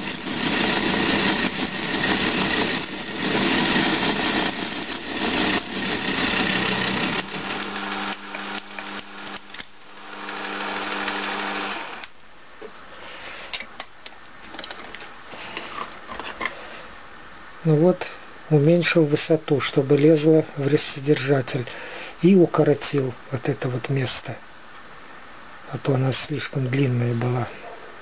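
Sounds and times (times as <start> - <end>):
milling machine cutting metal: 0.0 - 12.1.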